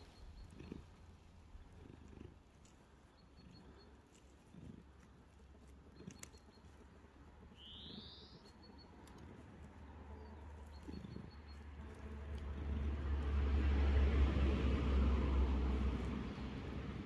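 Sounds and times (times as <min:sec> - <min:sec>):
cat purring: 0:00.0 - 0:08.0.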